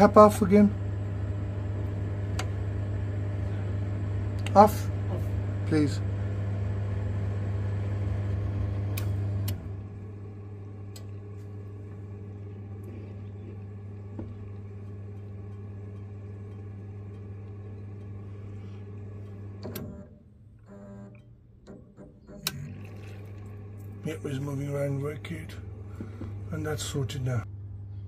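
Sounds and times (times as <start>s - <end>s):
boiler humming: 0.0s - 27.6s.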